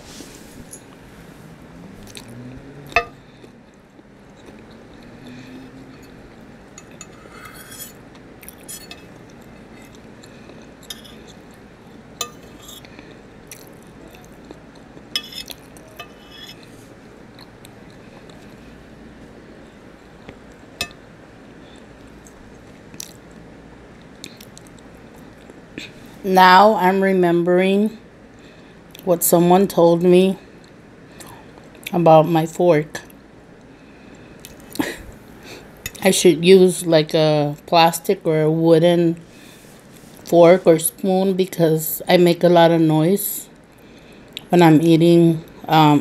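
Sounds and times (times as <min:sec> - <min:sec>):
soft chewing: 0:01.9 - 0:18.8, 0:21.4 - 0:23.4, 0:24.0 - 0:26.1
fork clinking on plate: 0:15.2 - 0:16.6.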